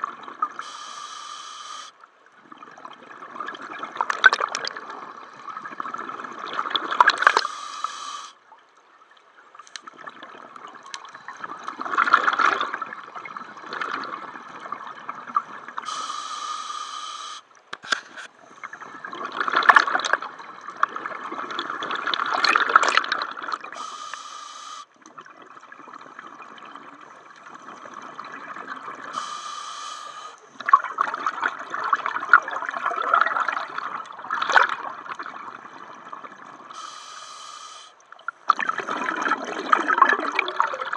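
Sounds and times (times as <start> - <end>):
diver breathing through regulator: 0.6 - 2.0, 7.3 - 8.4, 15.8 - 18.3, 23.8 - 24.9, 29.1 - 30.5, 36.7 - 38.0
rush of bubbles: 27.6 - 37.0, 38.4 - 40.9.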